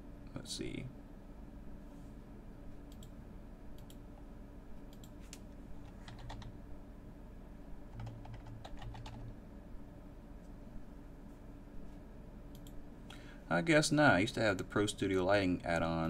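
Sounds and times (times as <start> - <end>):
low steady hum: 0.0 - 16.0
keyboard typing: 5.8 - 6.5, 7.9 - 9.3.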